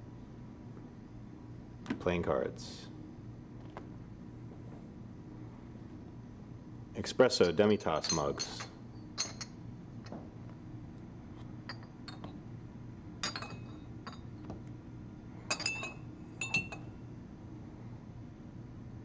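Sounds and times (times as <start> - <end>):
low steady hum: 0.0 - 19.0
small cups clinking: 7.5 - 9.5, 13.2 - 14.2, 15.5 - 16.8.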